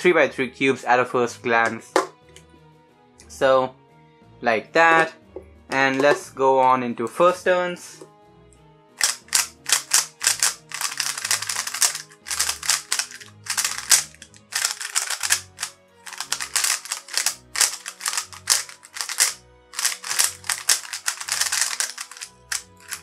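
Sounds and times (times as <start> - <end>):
speed cube plastic clicking: 9.0 - 23.0.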